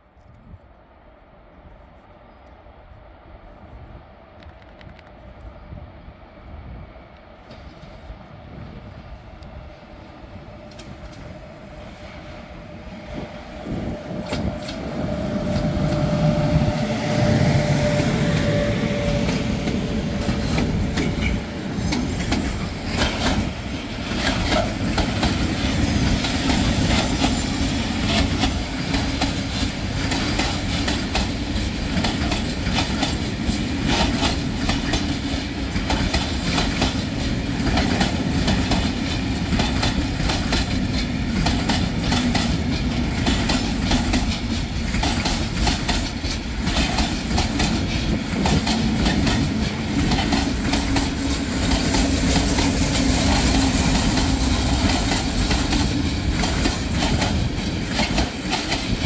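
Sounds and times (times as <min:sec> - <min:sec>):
steel wheels rumbling on rail: 0:03.0 - 0:59.0
wheels clicking over rail joints: 0:18.4 - 0:59.0.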